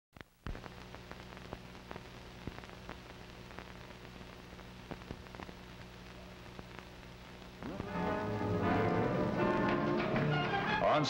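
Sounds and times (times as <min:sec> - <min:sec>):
film surface hiss: 0:00.2 - 0:10.8
low steady hum: 0:00.5 - 0:10.7
clicks and pops: 0:04.8 - 0:05.9.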